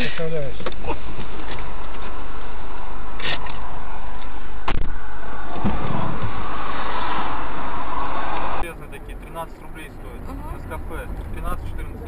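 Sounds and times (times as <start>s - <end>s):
low hum: 0.5s - 12.0s
steady noise inside car: 8.6s - 12.0s.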